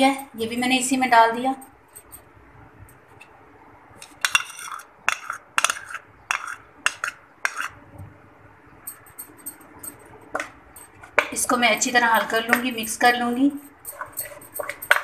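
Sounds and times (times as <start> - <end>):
metal spoon clinking on ceramic bowl: 4.0 - 7.8, 8.9 - 15.0.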